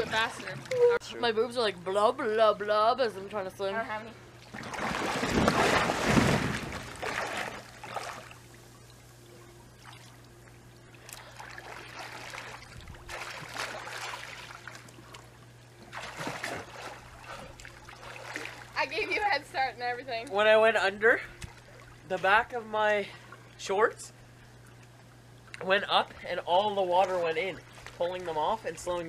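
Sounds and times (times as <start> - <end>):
water lapping: 0.0 - 1.2, 4.4 - 8.8, 9.4 - 23.6, 24.2 - 29.0
low steady hum: 0.0 - 29.0
swimmers splashing: 11.0 - 19.5.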